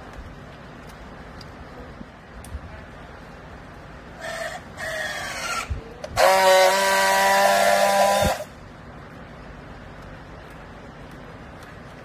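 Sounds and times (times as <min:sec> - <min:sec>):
strapping tool loud buzz: 0:06.2 - 0:08.5.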